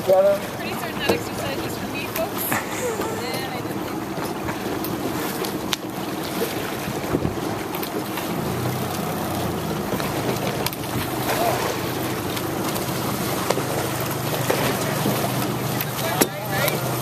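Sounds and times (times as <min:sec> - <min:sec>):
low steady hum: 0:00.0 - 0:17.0
oars splashing in water: 0:00.0 - 0:17.0
wind buffeting microphone: 0:06.5 - 0:07.6.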